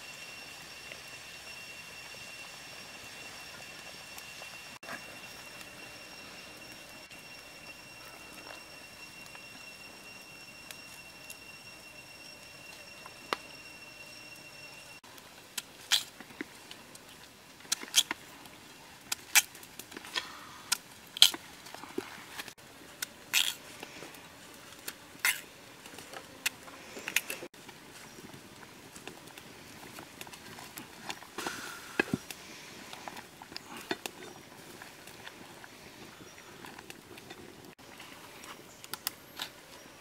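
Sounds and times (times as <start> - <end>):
thin high whine: 0.0 - 15.0.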